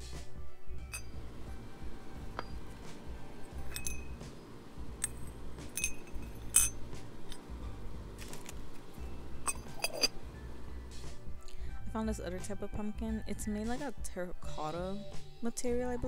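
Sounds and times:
ceramic clinks: 0.9s - 1.2s, 2.3s - 2.9s, 3.5s - 4.2s, 5.0s - 7.4s, 9.4s - 10.2s.

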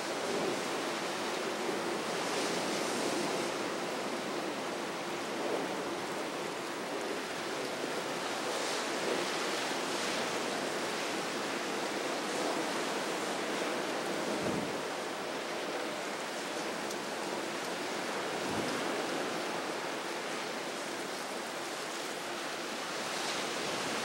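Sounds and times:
churning water of boat wake: 0.0s - 24.0s.

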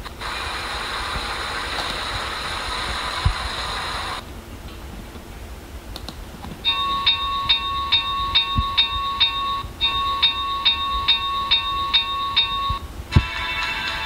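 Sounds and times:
recorded bell ringing: 6.7s - 14.0s.

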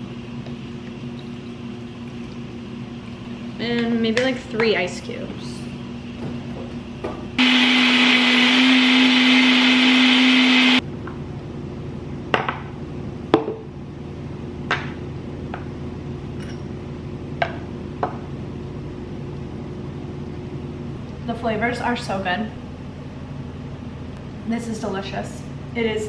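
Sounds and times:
blender motor whirring: 7.4s - 10.8s.

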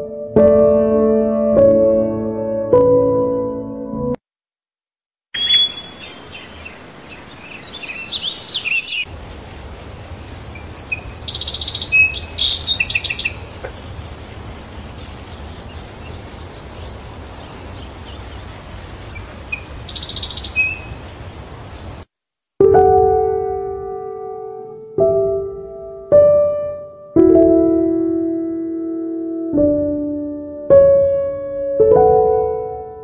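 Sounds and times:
birds chirping: 5.3s - 22.0s
bird trill: 5.4s - 9.1s, 10.6s - 13.5s, 15.0s - 21.1s
outdoor background hiss: 5.4s - 22.2s, 22.8s - 33.0s.

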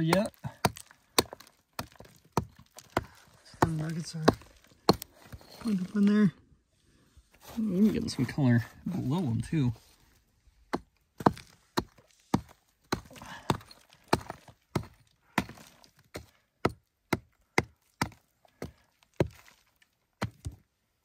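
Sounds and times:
rock pick chopping into clay: 0.0s - 5.7s, 10.7s - 19.5s, 20.2s - 20.6s.

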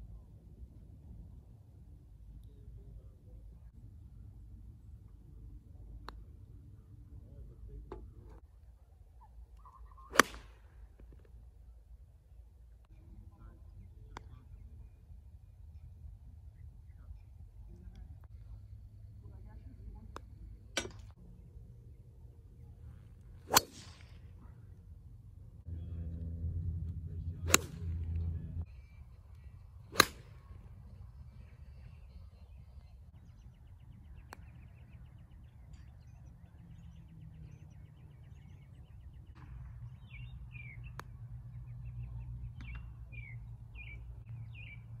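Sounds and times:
birds chirping: 12.9s - 20.3s, 26.9s - 45.0s
golf club striking ball: 23.5s - 24.0s, 27.3s - 28.4s, 29.9s - 30.5s
low rumble: 23.8s - 32.4s.

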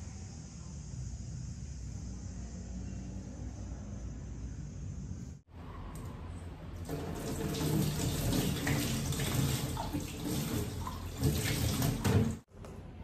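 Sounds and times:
tap water running into sink: 6.8s - 12.4s.

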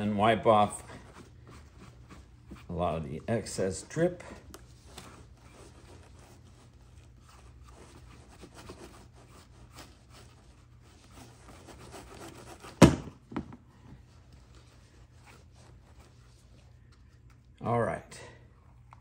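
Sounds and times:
rag rubbing on leather: 0.6s - 4.0s, 4.8s - 12.8s.

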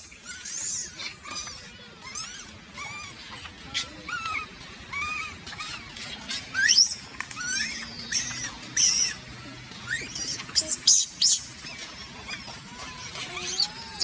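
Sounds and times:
baby monkey crying squeaks: 0.2s - 9.2s, 9.9s - 14.0s.

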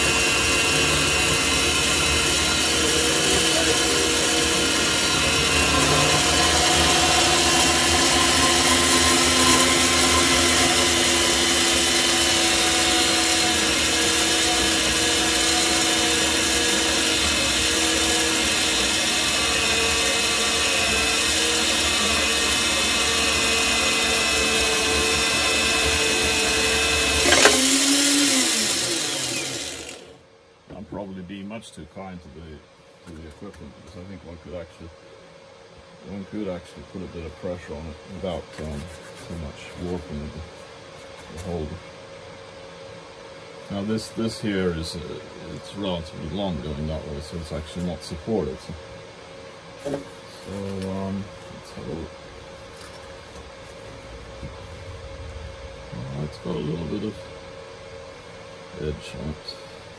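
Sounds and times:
band saw cutting steel: 0.0s - 30.2s.

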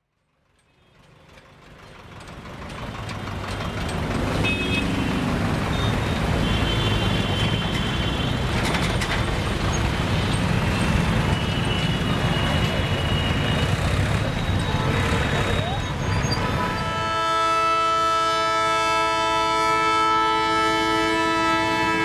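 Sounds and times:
traffic engines rumbling: 0.1s - 22.0s
car horn toots: 4.4s - 5.2s, 16.0s - 22.0s.

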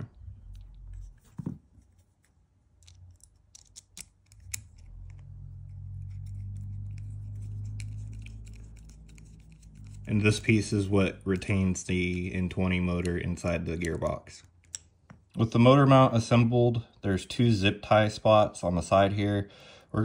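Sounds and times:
screw clicking and scraping: 1.9s - 5.2s, 6.0s - 10.1s
steady low hum: 4.0s - 17.2s.

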